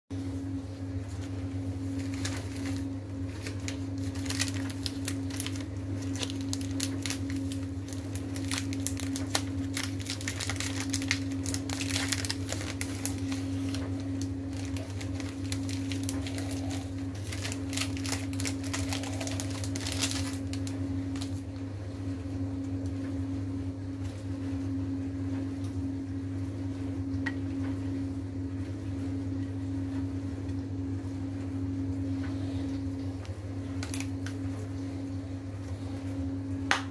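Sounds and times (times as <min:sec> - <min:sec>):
steady low hum: 0:00.1 - 0:36.9
packet crinkling and rustling: 0:01.8 - 0:21.4, 0:33.7 - 0:34.6.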